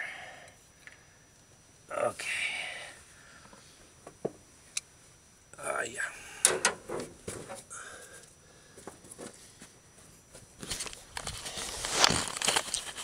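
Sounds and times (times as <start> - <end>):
rustling and scuffing: 6.8 - 7.7, 8.8 - 13.0.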